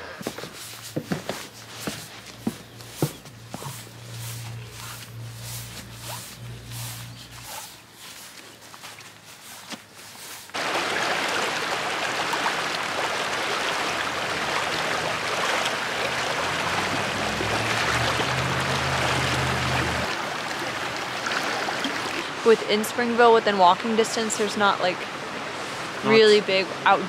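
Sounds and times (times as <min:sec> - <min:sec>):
soft steps on grass: 0:00.1 - 0:10.6
creek rushing over rocks: 0:00.4 - 0:27.0.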